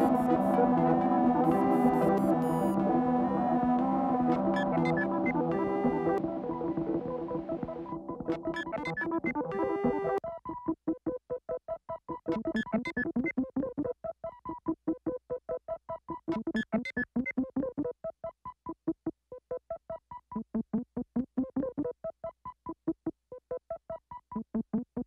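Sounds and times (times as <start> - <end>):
synthesizer staccato chords: 0.0 - 10.2.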